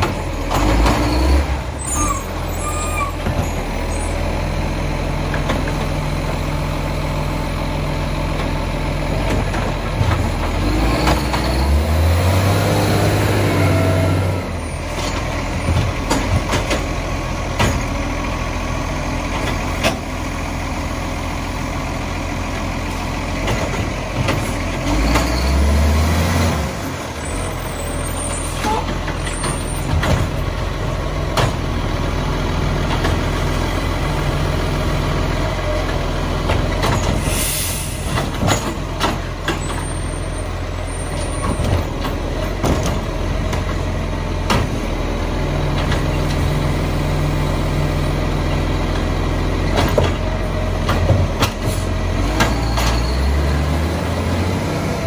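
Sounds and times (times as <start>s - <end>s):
garbage truck diesel engine revving: 0.0s - 55.0s
lift arm and bins clanking: 13.3s - 18.6s, 27.0s - 31.9s, 35.4s - 55.0s.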